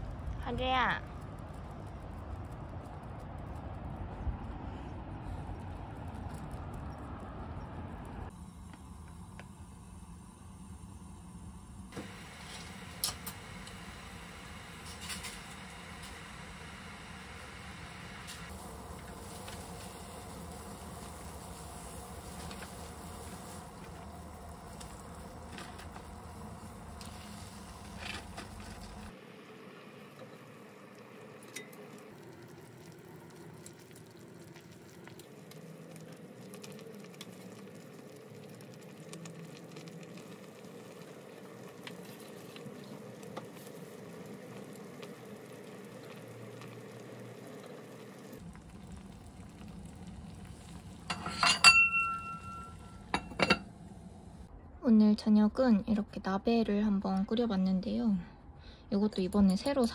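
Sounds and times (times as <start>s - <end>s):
broth bubbling in pot: 0.0s - 54.5s
ceramic lid clinking: 51.1s - 52.6s.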